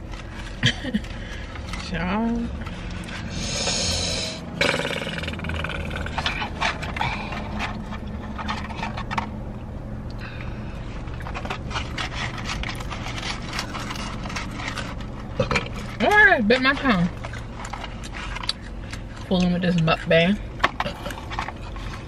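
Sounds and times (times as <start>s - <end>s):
low hum: 0.0s - 22.0s
chewing fries: 4.6s - 22.0s
paper packaging rustling: 6.3s - 9.4s, 10.8s - 19.2s.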